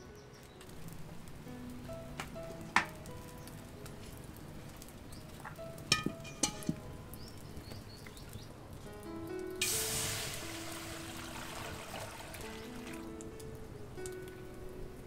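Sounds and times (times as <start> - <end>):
soft background music: 0.0 - 15.0
water pouring into a steel wok: 9.6 - 13.1.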